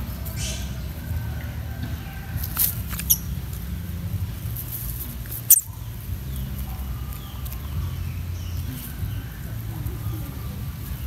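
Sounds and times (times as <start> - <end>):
steady low rumble: 0.0 - 11.0
young monkey squeaking: 0.2 - 0.9, 2.5 - 3.6, 4.7 - 9.1.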